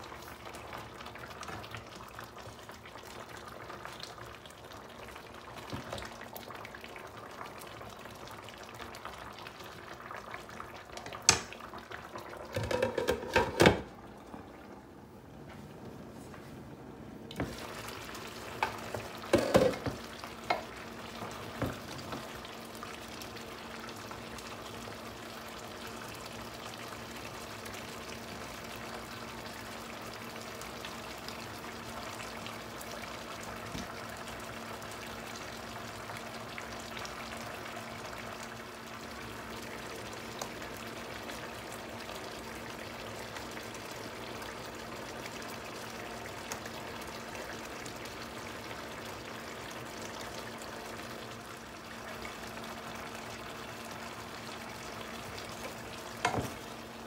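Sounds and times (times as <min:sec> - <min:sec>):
potatoes sizzling in skillet: 0:17.4 - 0:57.0.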